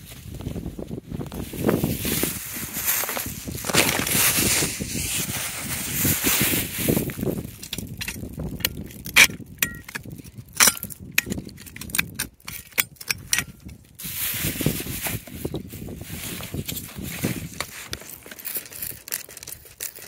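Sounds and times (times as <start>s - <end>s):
rustling: 0.0s - 8.4s, 14.0s - 20.0s
hand tool striking gravel and rock: 6.0s - 15.3s, 16.5s - 20.0s.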